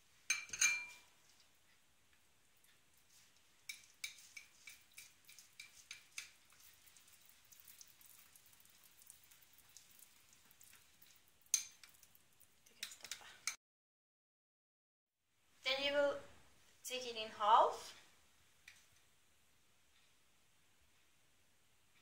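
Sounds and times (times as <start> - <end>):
soft stirring: 0.0 - 13.6, 17.7 - 19.2
glassy clink: 0.3 - 1.0
spoon clinking against glass bowl: 0.3 - 1.0, 11.5 - 12.0.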